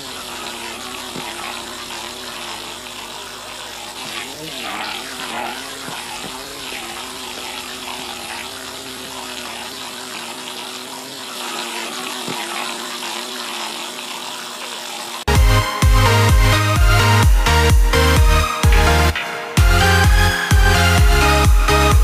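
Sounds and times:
constant hiss: 0:00.0 - 0:15.3
electronic dance music: 0:00.0 - 0:22.0
small electric motor buzzing: 0:00.0 - 0:22.0.

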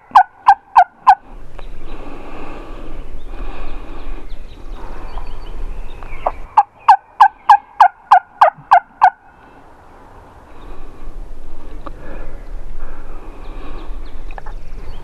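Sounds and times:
turkey yelps: 0:00.0 - 0:01.2, 0:06.6 - 0:09.2.

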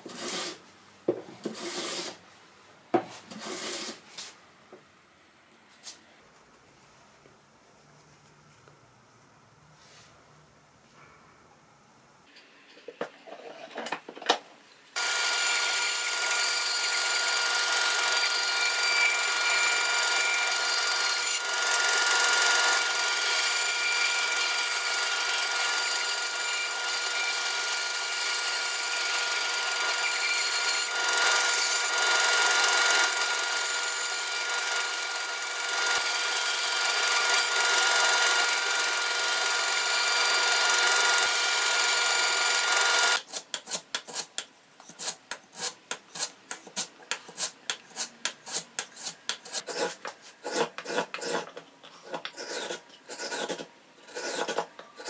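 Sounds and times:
bandsaw cutting wood: 0:15.0 - 0:43.2
hand filing wood: 0:43.4 - 0:54.7.

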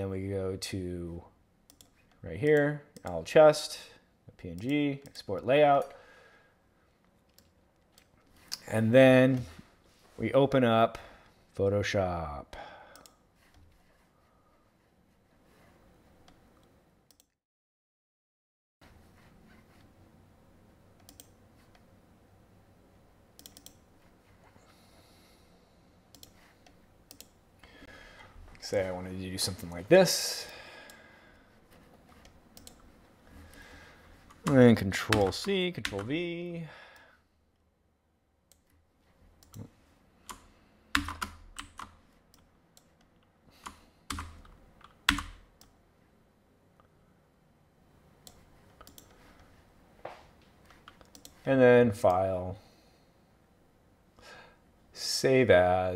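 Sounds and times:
computer mouse clicks: 0:01.7 - 0:02.0, 0:12.9 - 0:13.6, 0:16.2 - 0:17.4, 0:21.0 - 0:21.8, 0:23.4 - 0:23.8, 0:26.1 - 0:27.4, 0:32.2 - 0:32.8, 0:48.2 - 0:49.2, 0:50.6 - 0:51.4
computer keyboard typing: 0:23.4 - 0:23.8, 0:32.2 - 0:32.8, 0:34.4 - 0:36.2, 0:40.3 - 0:42.9, 0:43.6 - 0:45.7, 0:50.8 - 0:51.4.

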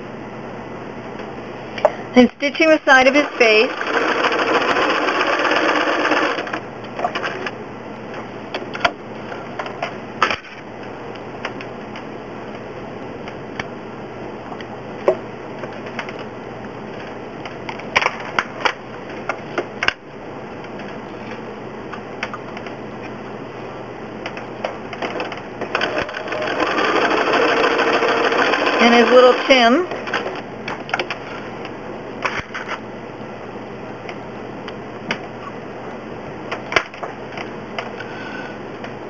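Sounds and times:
sewing machine stitching: 0:03.2 - 0:06.6, 0:25.7 - 0:29.4.

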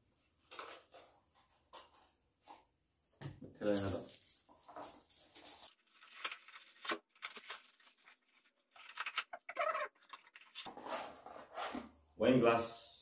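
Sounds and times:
wrapping paper crackling and tearing: 0:03.6 - 0:10.7.

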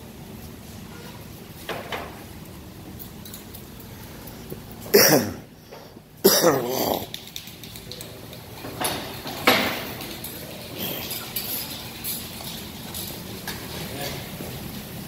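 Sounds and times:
person coughing: 0:04.9 - 0:05.5, 0:06.2 - 0:07.1.

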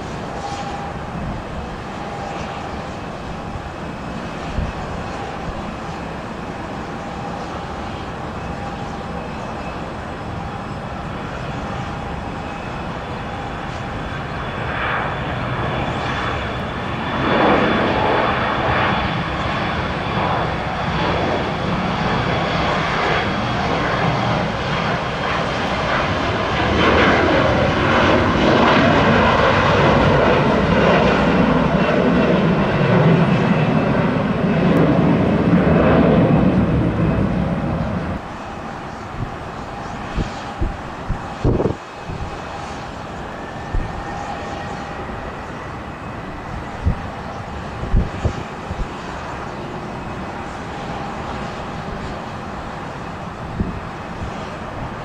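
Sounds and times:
jet engines roaring with whine: 0:00.0 - 0:55.0.

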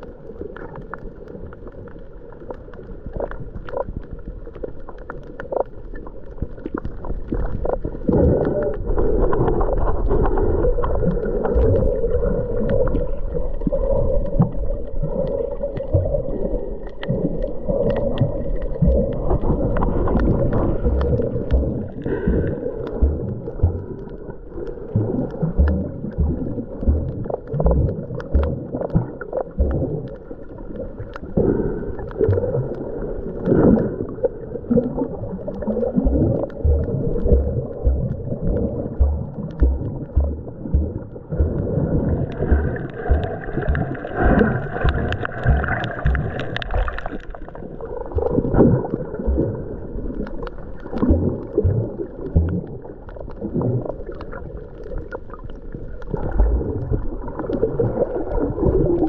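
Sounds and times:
muffled underwater gurgling: 0:00.0 - 0:59.0
low thumps: 0:36.1 - 0:46.6.

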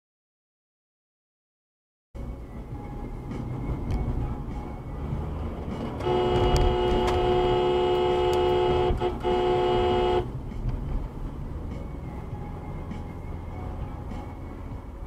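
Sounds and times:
car driving rumble: 0:02.2 - 0:15.0
car horn: 0:05.9 - 0:10.4.

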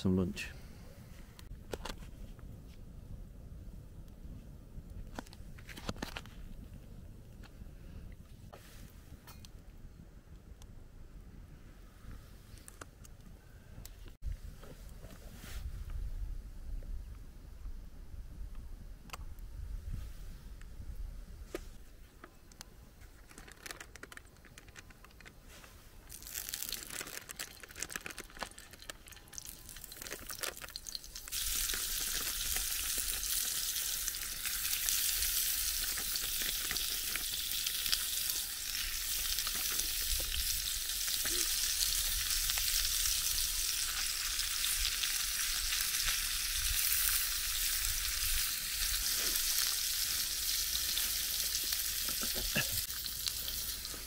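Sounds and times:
sausages sizzling in a pan: 0:29.3 - 0:54.0.

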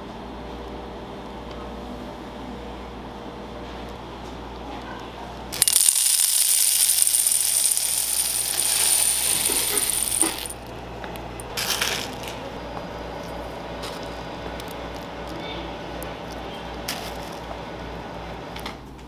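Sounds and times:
sprinkles poured into metal container: 0:05.6 - 0:10.6, 0:11.6 - 0:12.3.

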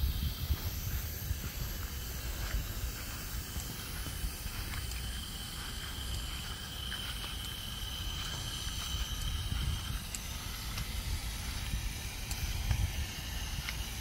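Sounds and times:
faint high steady whine: 0:00.0 - 0:14.0
light hiss: 0:00.0 - 0:14.0
low outdoor rumble: 0:00.0 - 0:14.0.

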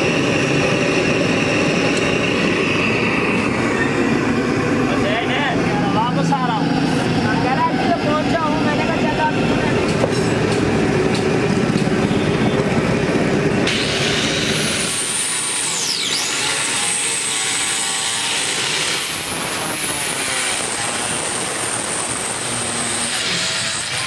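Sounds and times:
circular cutter motor whine: 0:00.0 - 0:24.0.

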